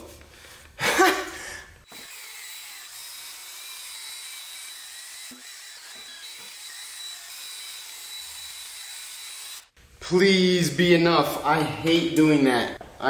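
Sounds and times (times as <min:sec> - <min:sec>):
power drill whining: 0:01.8 - 0:09.8.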